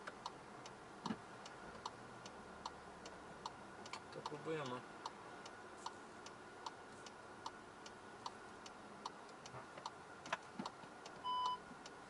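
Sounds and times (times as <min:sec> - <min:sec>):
turn signal ticking: 0:00.0 - 0:12.0
short electronic beep: 0:11.2 - 0:11.6.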